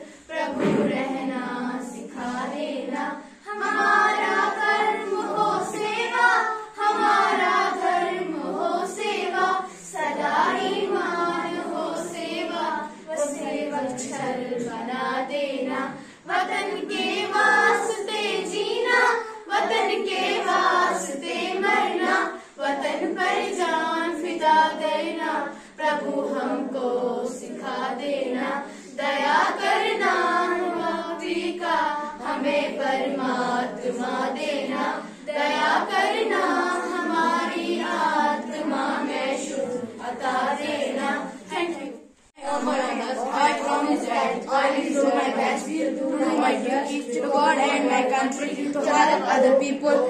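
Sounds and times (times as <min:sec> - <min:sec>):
singers breathing: 0:00.0 - 0:00.3, 0:15.9 - 0:16.3, 0:22.3 - 0:22.6, 0:25.5 - 0:25.8
girls singing in unison: 0:00.0 - 0:50.0.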